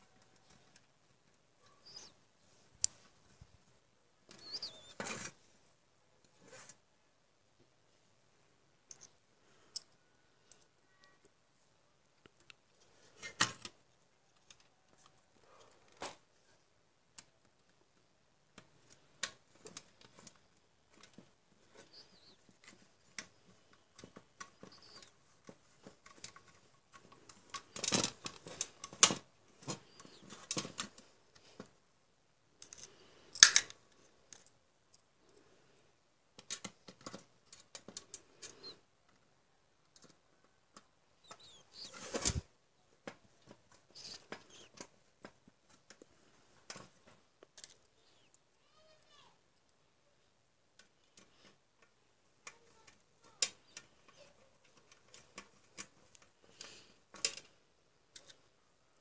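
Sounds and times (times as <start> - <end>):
clicks and rattles of handled metal: 18.9 - 31.5.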